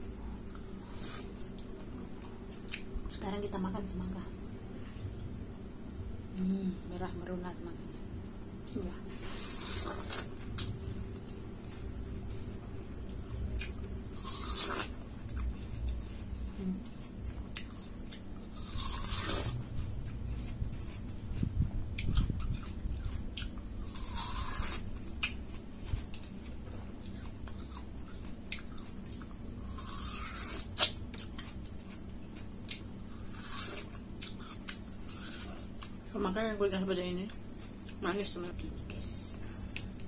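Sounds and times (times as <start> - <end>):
person biting and chewing watermelon: 0.5 - 1.7, 9.2 - 12.4, 13.0 - 36.0.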